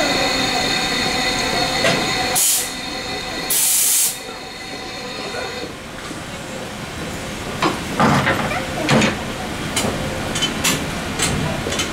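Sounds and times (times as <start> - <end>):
train cars humming: 0.0 - 11.9
compressed air hiss: 2.4 - 2.8, 3.5 - 4.2.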